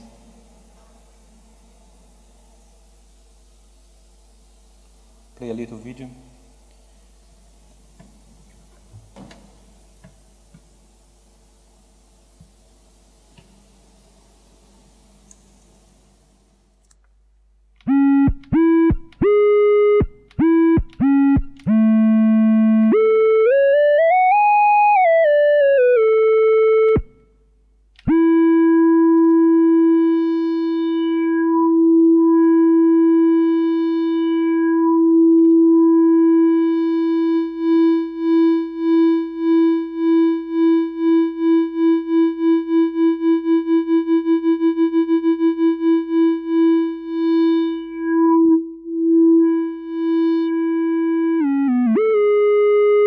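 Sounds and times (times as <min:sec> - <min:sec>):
synthesizer tone with tremolo: 0:17.9 - 0:27.1, 0:28.1 - 0:53.0.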